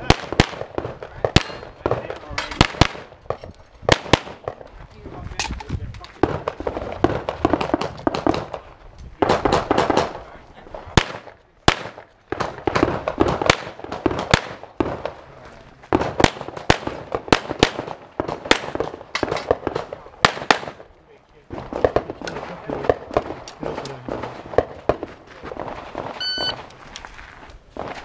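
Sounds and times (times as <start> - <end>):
pistol shots with echo: 0.0 - 3.1, 11.0 - 15.2, 15.9 - 20.8.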